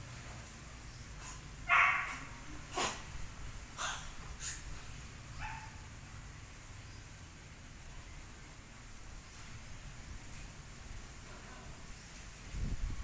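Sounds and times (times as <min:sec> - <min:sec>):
animal barks or yips: 0:01.6 - 0:03.0.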